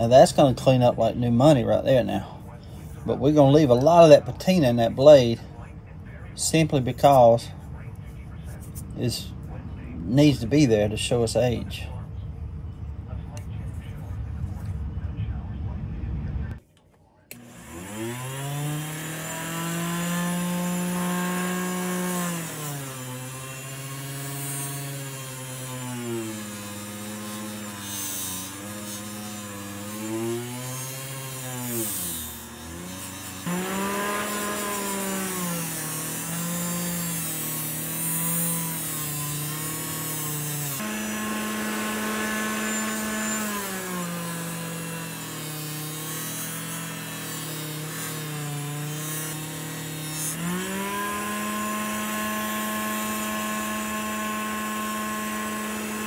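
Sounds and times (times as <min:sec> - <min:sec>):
bench grinder motor running: 0:17.3 - 0:56.0
knife blade grinding on wheel: 0:17.4 - 0:56.0.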